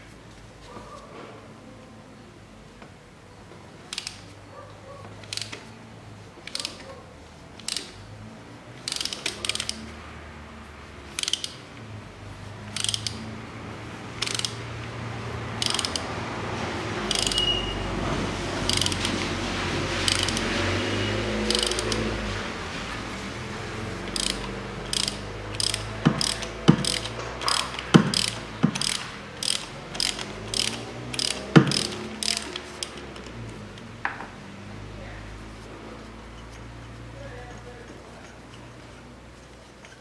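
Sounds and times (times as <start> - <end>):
ratchet wrench pawl clicking: 3.9 - 4.3, 5.2 - 5.7, 6.4 - 6.8, 7.6 - 8.0, 8.8 - 9.9, 11.1 - 11.8, 12.7 - 13.3, 14.2 - 14.7, 15.6 - 16.2, 17.0 - 17.6, 18.6 - 19.3, 20.0 - 20.5, 21.5 - 22.1, 24.0 - 33.4.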